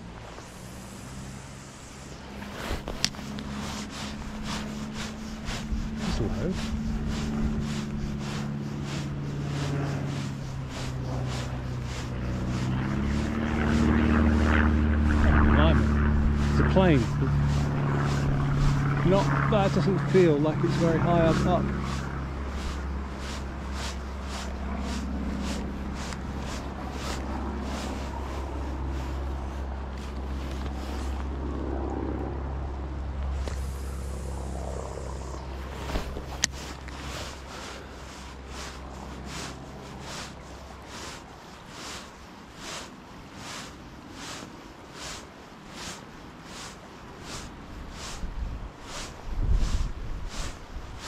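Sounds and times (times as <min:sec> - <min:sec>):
wind on microphone: 0:00.0 - 0:32.5, 0:46.7 - 0:51.0
plane engine drone overhead: 0:00.0 - 0:51.0.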